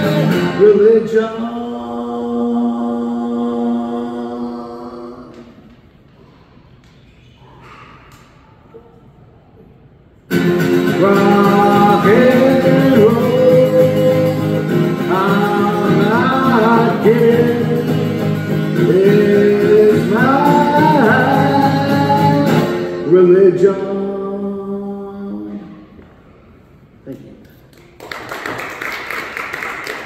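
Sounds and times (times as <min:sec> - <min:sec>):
acoustic guitar strumming: 0:00.0 - 0:05.0, 0:10.3 - 0:24.5
man singing: 0:00.0 - 0:05.0, 0:10.8 - 0:25.7.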